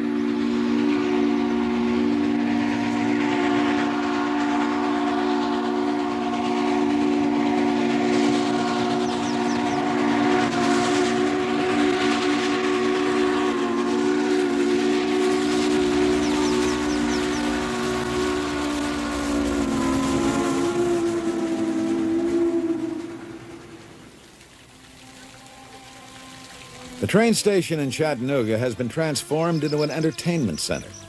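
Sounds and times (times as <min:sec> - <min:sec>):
steam hissing: 0:00.0 - 0:24.2
steam locomotive whistle: 0:00.0 - 0:24.2, 0:25.1 - 0:31.0.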